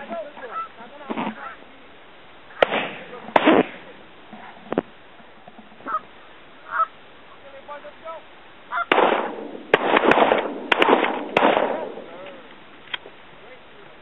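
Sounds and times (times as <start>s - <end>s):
geese clucking: 0.1s - 1.7s, 5.4s - 7.4s, 8.7s - 9.0s
geese honking: 0.3s - 1.7s, 5.8s - 7.9s, 8.7s - 9.0s.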